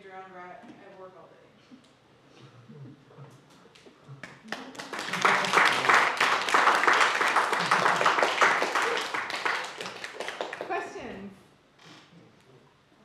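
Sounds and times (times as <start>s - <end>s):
people clapping: 3.8s - 11.2s.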